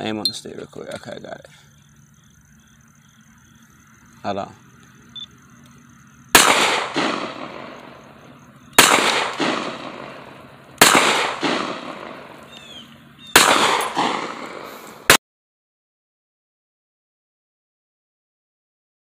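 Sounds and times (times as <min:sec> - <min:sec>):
gunshots with echo: 0:06.3 - 0:08.2, 0:08.8 - 0:12.5, 0:13.3 - 0:15.2.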